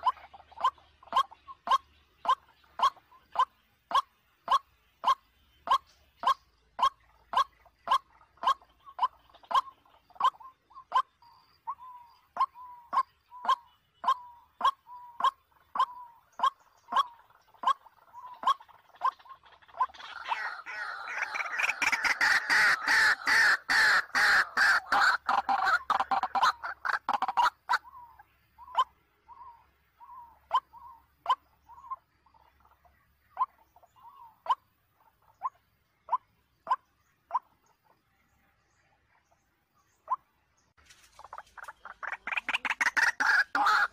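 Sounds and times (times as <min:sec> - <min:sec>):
waterhen calling: 0:00.0 - 0:38.0, 0:41.1 - 0:43.9.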